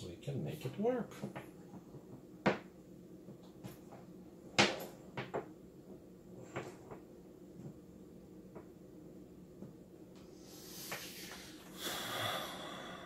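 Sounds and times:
sharp knocks on a wooden table: 2.4s - 2.7s.

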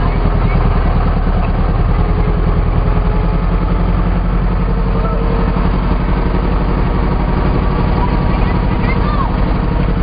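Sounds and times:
boat engine running steadily: 0.0s - 10.0s.

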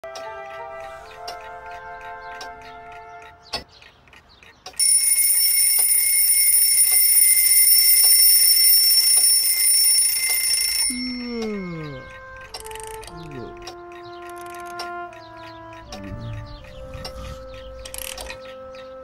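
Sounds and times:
clock ticking: 0.0s - 19.0s
alarm clock bells ringing: 4.8s - 13.3s, 16.4s - 18.6s
tone sliding down in pitch: 10.9s - 14.8s, 15.6s - 18.6s.

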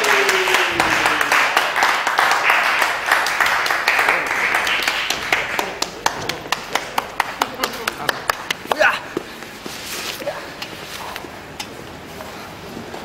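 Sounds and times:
people applauding: 0.0s - 9.1s.

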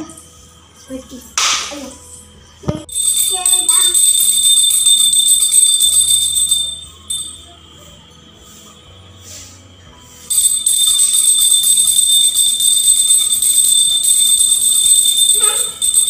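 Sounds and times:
hand bell ringing: 2.9s - 7.5s, 10.3s - 16.0s.

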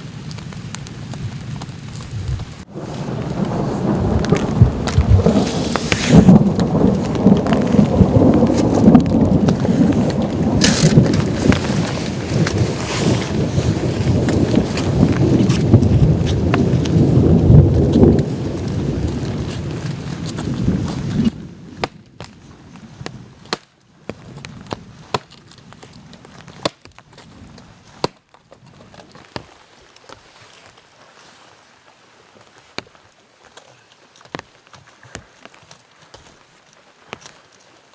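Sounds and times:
rain pattering: 0.0s - 37.9s
low rumble of thunder: 2.1s - 21.8s
hatchet chopping firewood: 21.8s - 22.4s, 23.4s - 23.8s, 24.7s - 25.4s, 26.5s - 27.0s, 28.0s - 28.4s.

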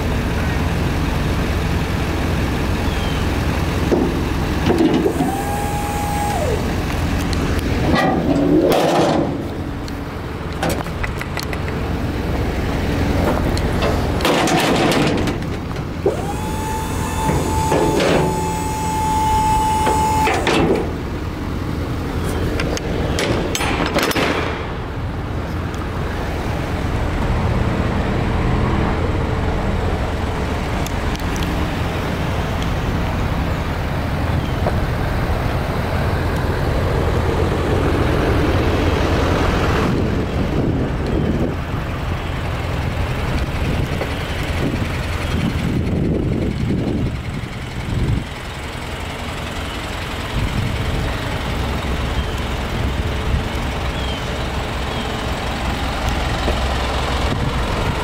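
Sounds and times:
hydraulic pump motor whining: 4.0s - 9.5s, 14.0s - 21.2s
metal clanks and rattles: 7.8s - 9.6s, 13.3s - 16.0s, 22.6s - 24.8s.

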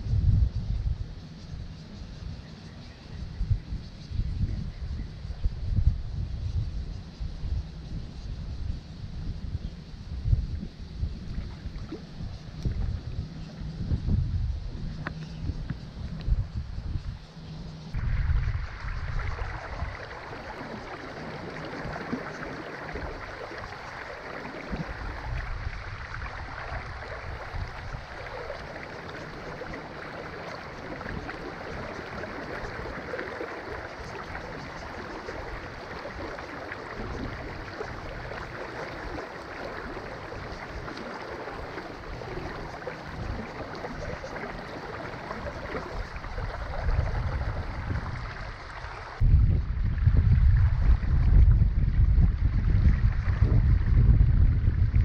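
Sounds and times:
wind buffeting microphone: 0.0s - 1.8s, 3.1s - 55.0s
creek water flowing: 17.9s - 55.0s.

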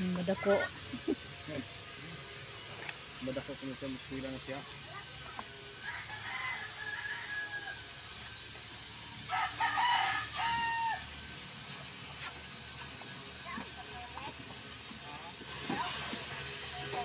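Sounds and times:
rooster crowing: 5.7s - 8.0s, 9.2s - 11.2s.

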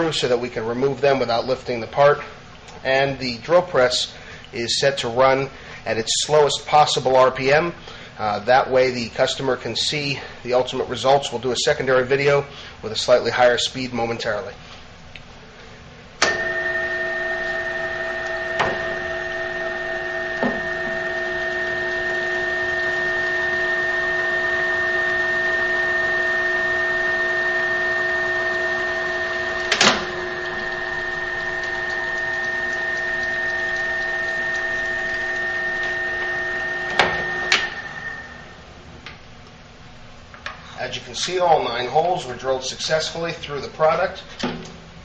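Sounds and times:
drill press whining: 16.2s - 38.7s.

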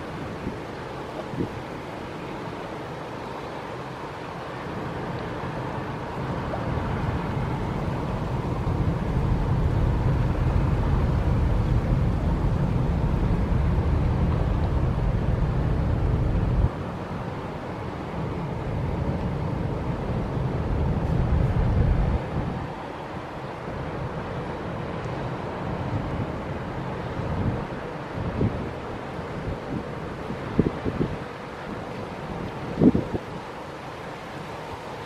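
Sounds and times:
wind buffeting microphone: 0.0s - 2.5s, 6.2s - 23.0s, 25.8s - 33.5s.

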